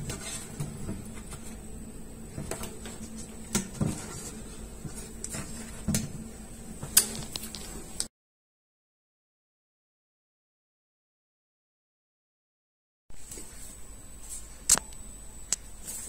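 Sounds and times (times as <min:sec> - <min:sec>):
faint steady hum: 0:00.0 - 0:08.1, 0:13.1 - 0:16.0.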